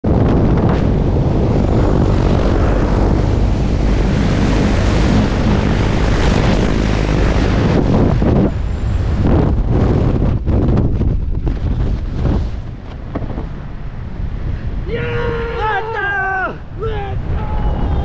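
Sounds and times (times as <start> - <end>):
propeller aircraft engine: 0.0 - 14.3
rushing wind: 0.0 - 18.0.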